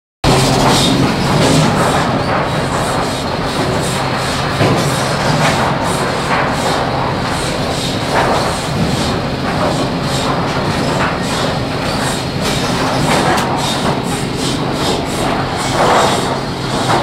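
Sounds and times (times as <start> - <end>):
loud machinery knocks: 0.2 - 17.0
sawmill machinery din: 0.2 - 17.0.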